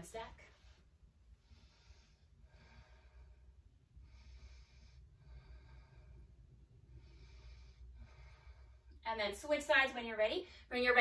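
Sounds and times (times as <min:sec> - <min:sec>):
low room hum: 0:00.0 - 0:11.0
woman breathing slowly: 0:00.5 - 0:09.0.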